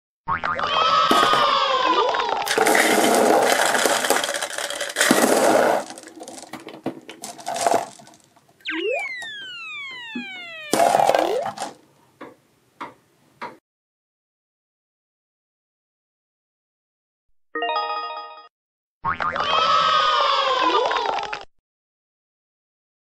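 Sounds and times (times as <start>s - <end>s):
rising swoop: 8.6s - 10.8s
tone gliding down: 8.6s - 11.4s
noisy cartoon sound effect: 8.6s - 11.8s.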